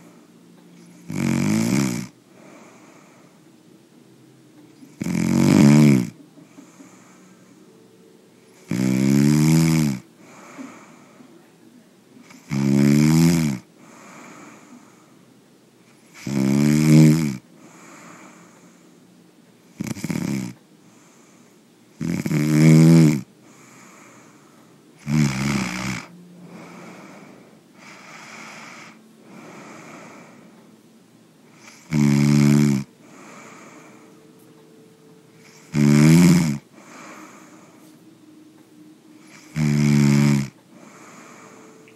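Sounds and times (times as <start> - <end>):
person snoring loudly: 0.9 - 3.1, 4.8 - 7.5, 8.5 - 11.1, 12.3 - 15.0, 16.0 - 18.5, 19.7 - 20.6, 22.0 - 24.1, 25.0 - 30.5, 31.5 - 34.2, 35.4 - 37.9, 39.2 - 41.9.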